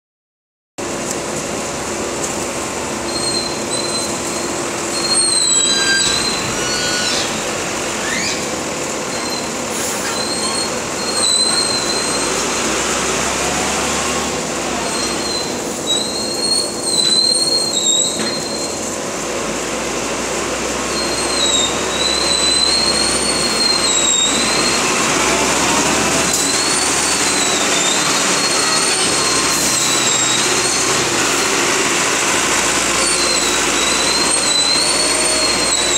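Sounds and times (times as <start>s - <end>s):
loader diesel engine running: 0.8s - 35.9s
high-pitched wavering squeals: 3.1s - 7.4s, 8.0s - 12.5s, 20.9s - 31.6s, 32.6s - 35.9s.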